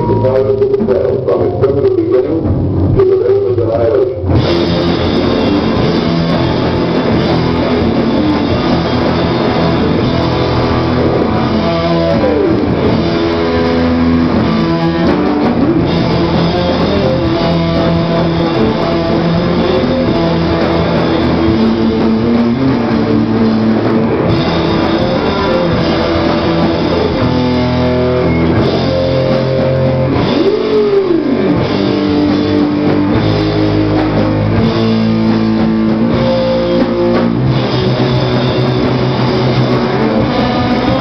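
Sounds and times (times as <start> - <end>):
drum kit: 0.0 - 41.0
electric guitars: 0.0 - 41.0.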